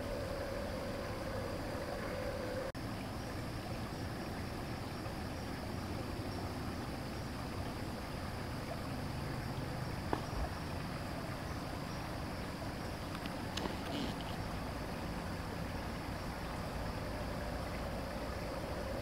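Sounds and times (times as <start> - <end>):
microphone hiss: 0.0 - 19.0
night background noise: 0.0 - 19.0
faint click: 13.1 - 14.4.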